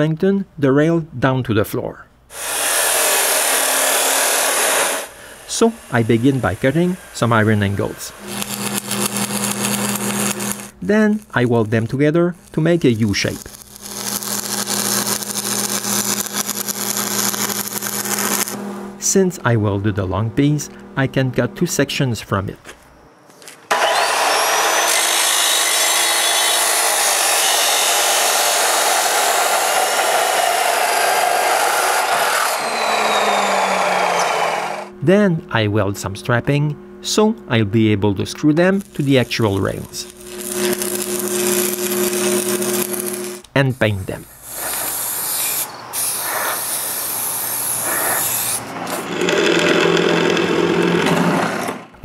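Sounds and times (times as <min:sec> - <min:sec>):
chop saw cutting steel: 0:02.3 - 0:10.8, 0:12.4 - 0:18.6, 0:23.7 - 0:34.9, 0:38.8 - 0:43.4, 0:44.4 - 0:51.9
spray paint can hissing: 0:40.3 - 0:48.7.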